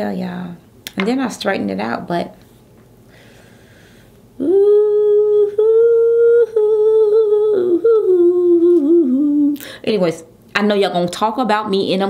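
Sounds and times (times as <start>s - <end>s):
woman humming slow tune: 4.4s - 9.6s.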